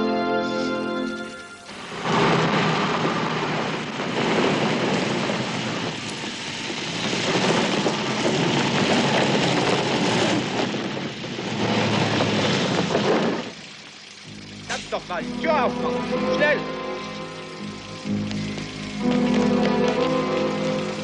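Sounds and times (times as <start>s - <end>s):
tyres crunching over gravel: 17.0s - 21.0s.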